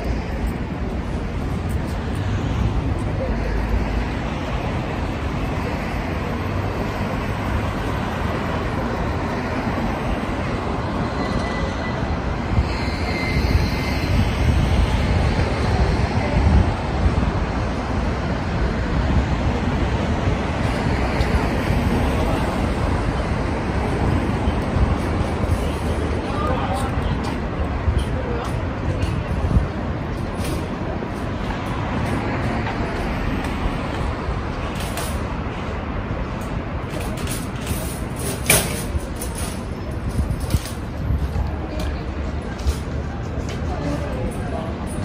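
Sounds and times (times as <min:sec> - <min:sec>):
city street vehicle rumble: 0:00.0 - 0:45.0.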